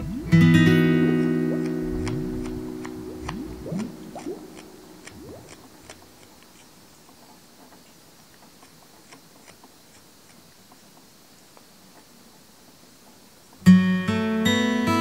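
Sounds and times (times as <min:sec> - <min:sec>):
guitar piece: 0:00.0 - 0:05.0, 0:13.7 - 0:15.0
knife carving wood chips: 0:01.0 - 0:11.0.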